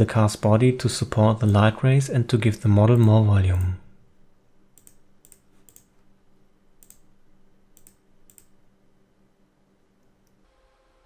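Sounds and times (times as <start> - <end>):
faint low hum: 0.0 - 11.0
computer mouse clicks: 4.8 - 6.0, 6.8 - 7.1, 7.8 - 8.6, 10.0 - 10.4.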